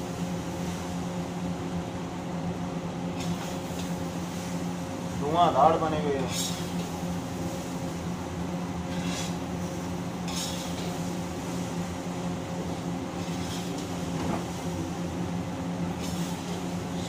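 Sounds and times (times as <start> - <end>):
metal ladle scraping a wok: 8.9 - 9.4.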